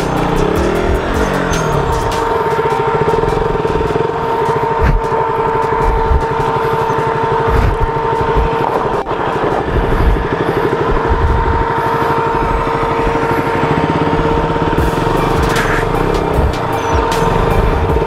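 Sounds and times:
high whine: 0.0s - 18.0s
motorcycle engine at low revs: 0.0s - 18.0s.

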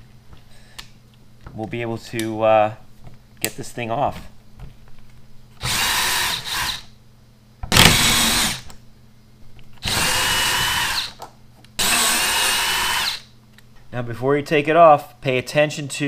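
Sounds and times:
cordless drill bursts: 5.6s - 6.9s, 7.7s - 8.7s, 9.8s - 11.2s, 11.8s - 13.2s.

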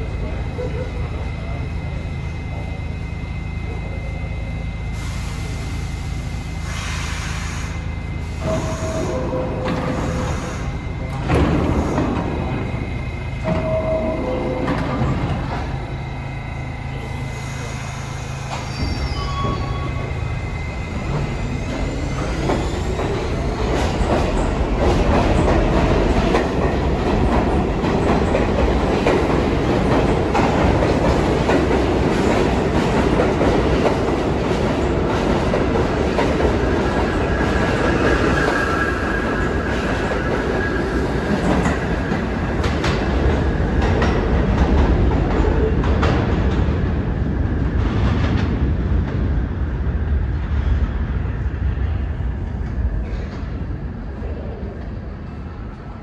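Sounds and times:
subway train wheels clattering: 0.0s - 56.0s
high wheel squeal: 16.9s - 23.0s.

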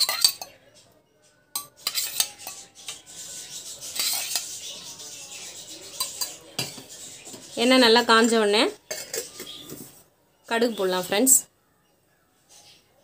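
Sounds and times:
metal spoon clinking on pan: 0.0s - 0.6s, 1.5s - 3.1s, 4.0s - 4.5s, 5.9s - 6.8s, 8.9s - 9.6s.

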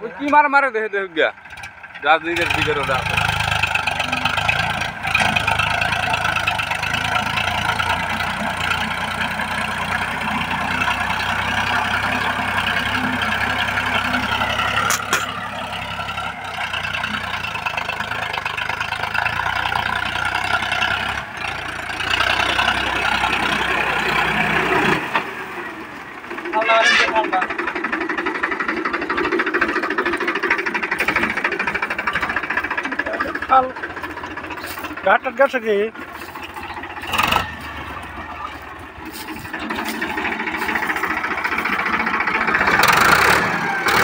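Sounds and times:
tractor diesel engine running: 0.0s - 44.0s
rotavator churning soil: 2.4s - 18.9s, 26.3s - 44.0s.

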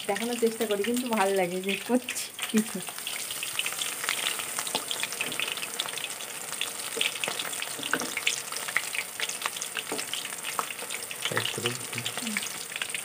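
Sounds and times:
chicken deep-frying in oil: 0.0s - 13.0s
metal spatula stirring oil: 1.7s - 11.3s.

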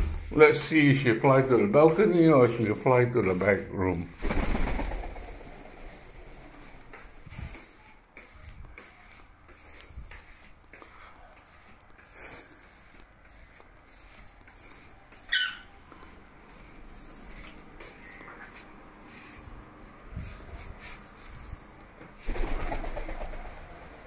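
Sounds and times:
rustling: 4.1s - 19.6s.

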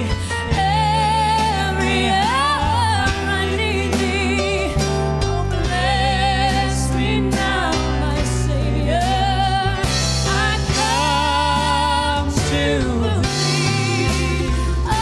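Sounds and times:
band playing: 0.0s - 15.0s
woman singing a hymn: 0.0s - 15.0s.

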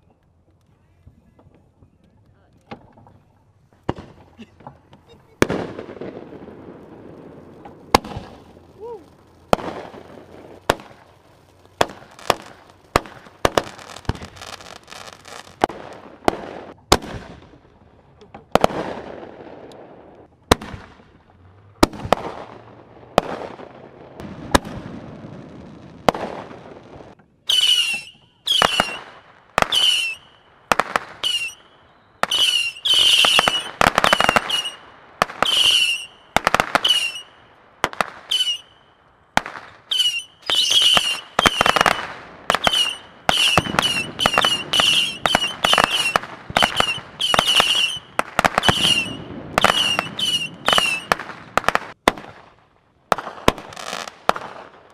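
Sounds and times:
firework bangs: 2.6s - 54.9s
whistling firework shots: 5.0s - 17.5s, 27.4s - 52.5s.

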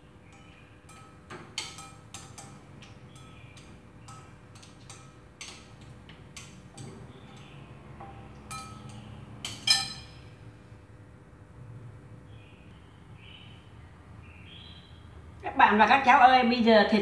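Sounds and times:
metal spoon clinking glass bowl: 0.3s - 10.2s.

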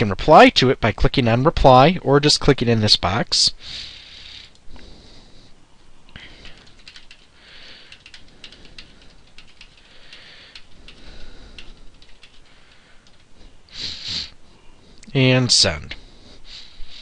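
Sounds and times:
keyboard typing clicks: 6.4s - 13.3s.

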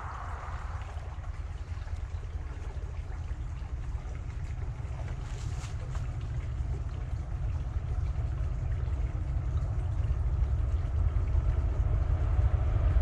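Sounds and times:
diesel locomotives rumbling: 6.2s - 13.0s.

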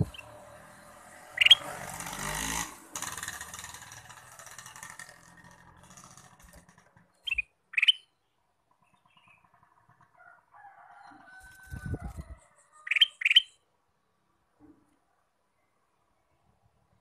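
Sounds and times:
bird chirping: 0.0s - 1.7s, 7.1s - 9.7s, 12.8s - 13.6s.

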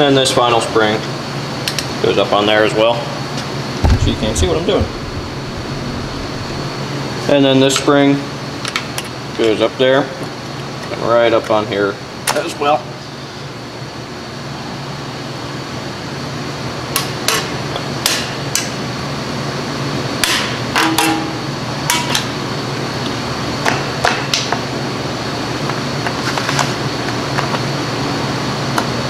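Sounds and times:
steady shop hum: 0.8s - 8.6s.

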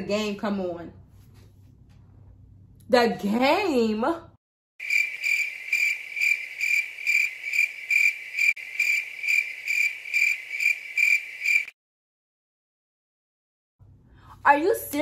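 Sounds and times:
cricket chirping: 4.8s - 11.7s.

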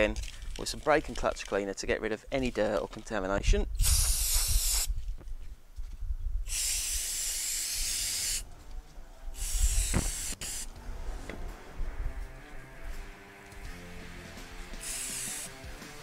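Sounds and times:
aerosol can spraying: 3.8s - 5.0s, 6.5s - 8.4s, 9.4s - 10.7s, 14.6s - 16.0s.

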